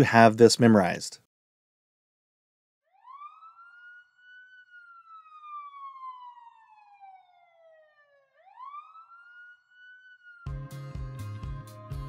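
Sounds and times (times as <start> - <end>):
police siren wailing: 2.9 - 12.0.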